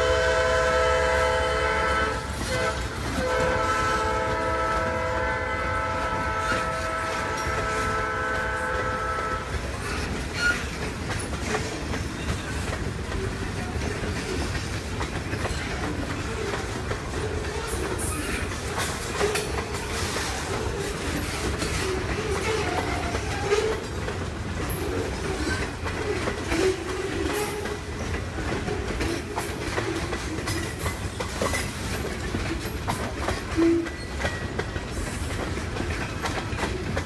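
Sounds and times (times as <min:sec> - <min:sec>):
train horn blast: 0:00.0 - 0:09.8, 0:33.5 - 0:34.0
wheels clacking over rail joints: 0:00.0 - 0:37.0.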